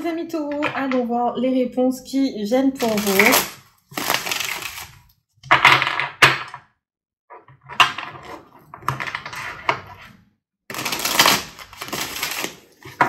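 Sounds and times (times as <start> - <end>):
cards being shuffled: 2.8 - 5.0.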